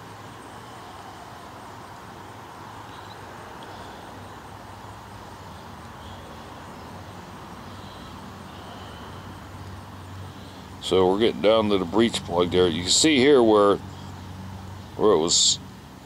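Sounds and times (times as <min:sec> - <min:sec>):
faint high chirps: 0:02.8 - 0:07.0.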